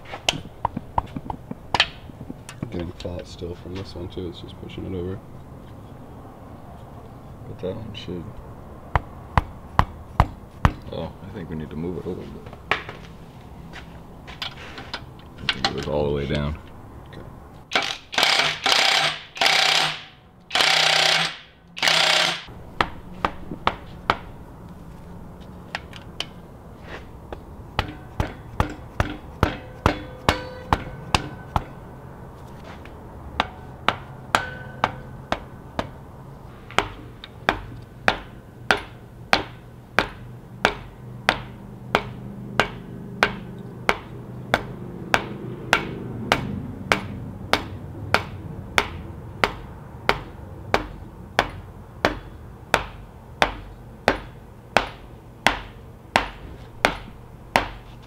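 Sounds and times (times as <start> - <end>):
hammer tapping on steel rod: 27.8 - 31.7.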